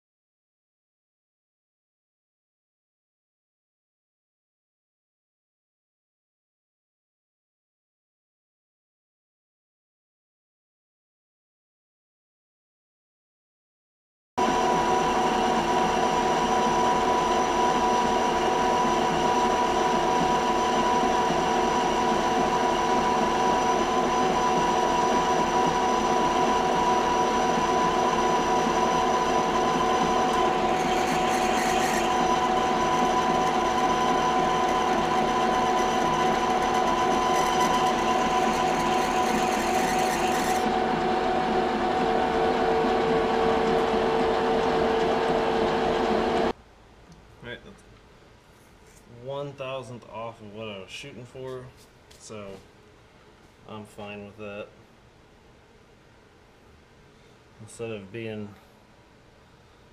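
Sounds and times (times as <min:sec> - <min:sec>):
metal lathe whine: 0:14.4 - 0:46.5.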